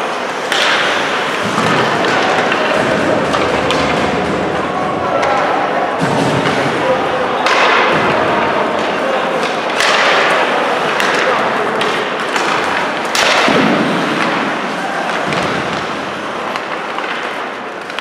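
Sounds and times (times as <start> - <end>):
skates scraping ice: 0.0 - 18.0
stick and puck clacks: 0.0 - 18.0
people shouting: 14.1 - 15.8.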